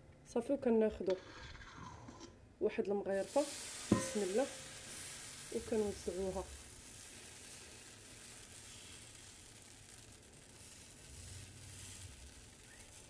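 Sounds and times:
batter sizzling in oiled pan: 0:03.2 - 0:13.0.

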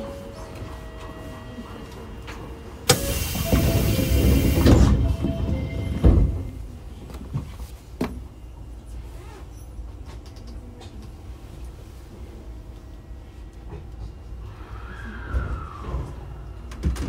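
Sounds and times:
low steady train rumble: 0:00.0 - 0:17.0
train doors closing with thud: 0:02.3 - 0:08.3, 0:15.4 - 0:17.0.

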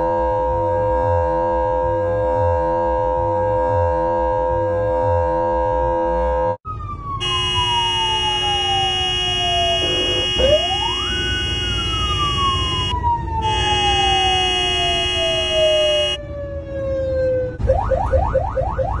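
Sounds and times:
mechanical siren wailing: 0:00.0 - 0:19.0
rising yelp siren: 0:00.0 - 0:19.0
steady chord of tones: 0:07.2 - 0:16.2.

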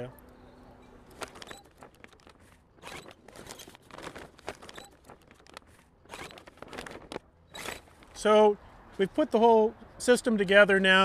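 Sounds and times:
rigging clicks: 0:01.0 - 0:08.2
sailcloth rustling: 0:01.0 - 0:08.2.

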